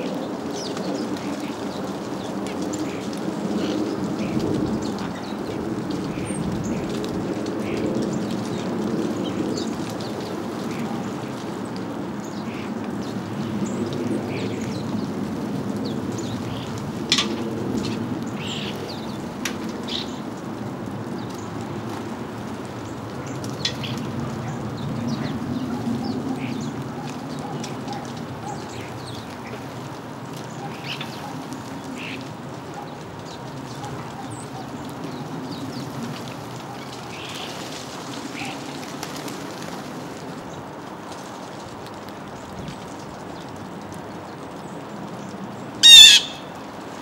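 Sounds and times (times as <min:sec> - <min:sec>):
sparrows chirping: 0:22.8 - 0:29.8, 0:45.8 - 0:46.5.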